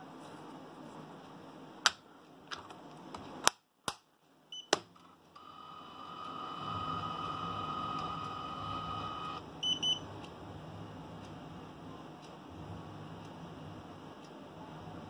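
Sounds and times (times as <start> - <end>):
steady high electronic tone: 5.4 - 9.4.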